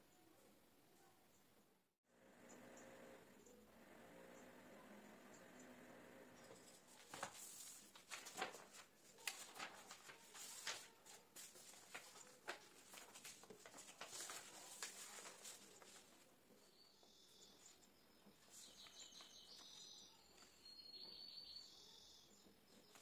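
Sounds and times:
paper rustling and crinkling: 6.6s - 16.3s.

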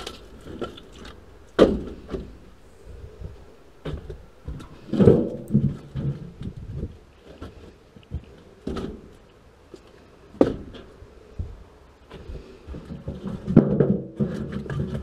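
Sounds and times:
firewood knocking and clunking: 0.0s - 5.8s.

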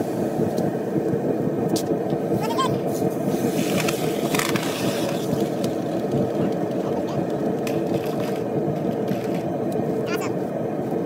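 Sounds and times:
steady mechanical drone: 0.0s - 11.0s
hot metal hissing in water: 2.3s - 5.8s.

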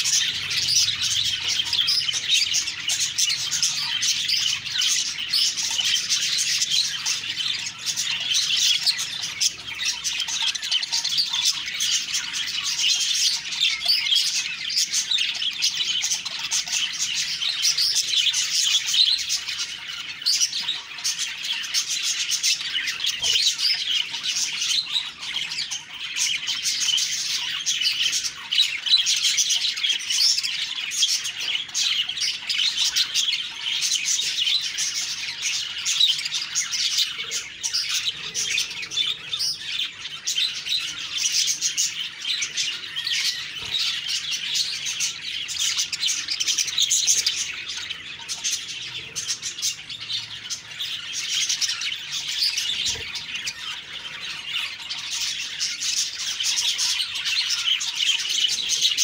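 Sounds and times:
budgerigars chirping and warbling: 0.0s - 59.0s.

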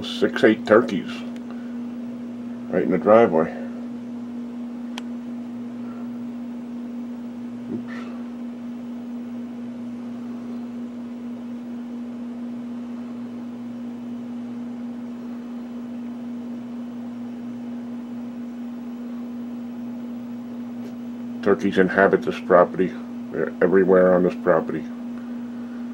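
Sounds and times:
low mechanical hum: 0.0s - 25.9s.

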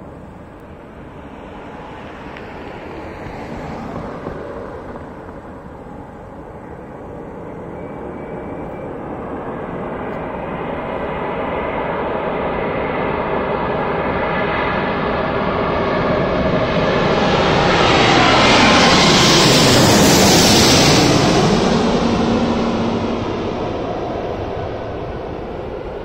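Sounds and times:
jet airliner engine roar: 0.0s - 26.0s.

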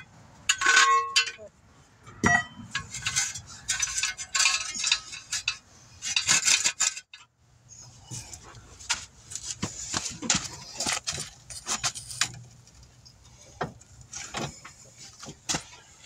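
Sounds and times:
metal jack stand clinking: 0.5s - 7.3s.

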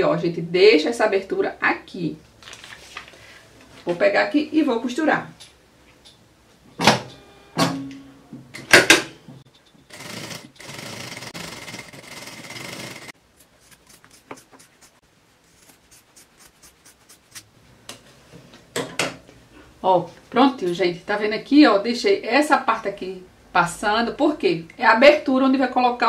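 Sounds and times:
industrial sewing machine running: 9.9s - 13.1s.

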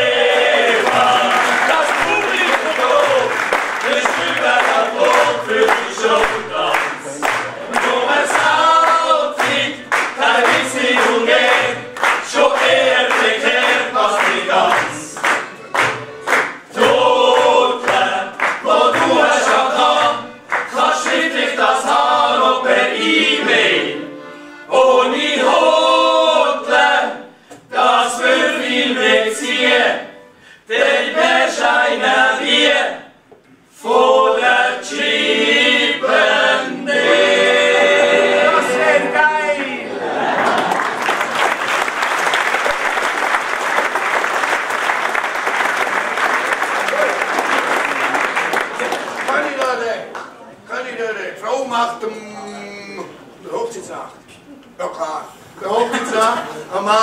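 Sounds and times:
group singing in chorus: 0.0s - 41.8s.

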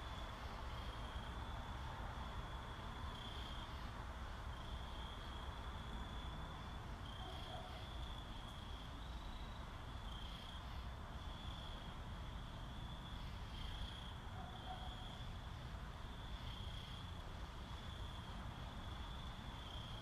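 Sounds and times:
cricket trilling: 0.0s - 20.0s.

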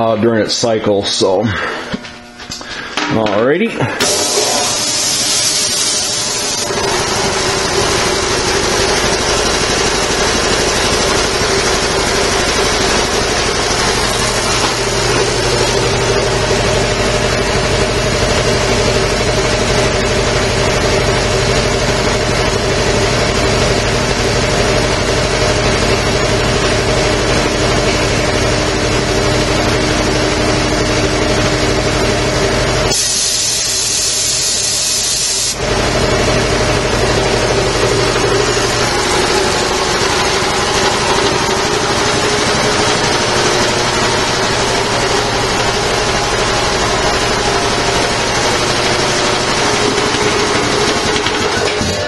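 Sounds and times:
air compressor running: 0.0s - 52.0s
drain valve hissing air: 4.0s - 8.5s, 32.9s - 35.6s.

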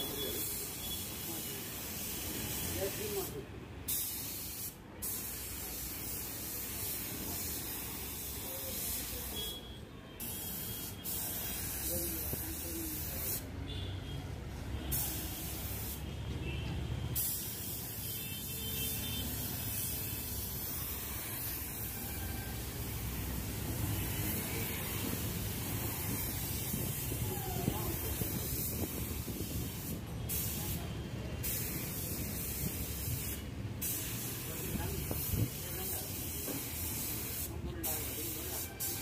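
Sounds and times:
paint spray gun hissing: 23.5s - 30.8s, 31.4s - 39.0s.

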